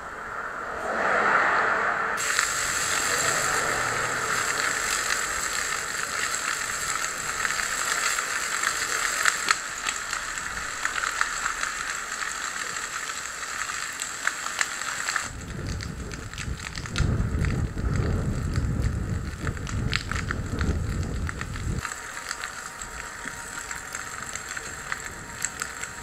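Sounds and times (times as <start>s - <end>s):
fire rushing noise: 0.0s - 26.0s
fire crackling and popping: 2.2s - 26.0s.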